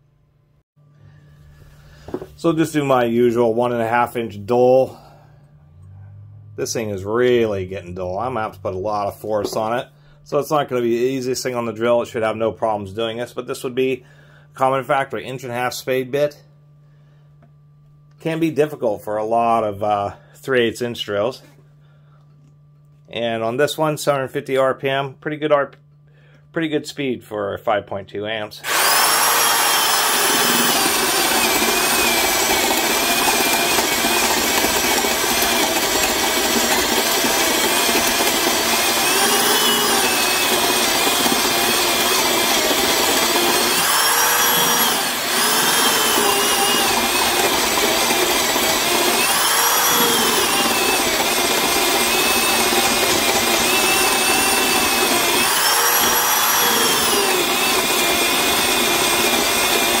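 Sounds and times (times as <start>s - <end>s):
drill boring into wood: 28.6s - 60.0s.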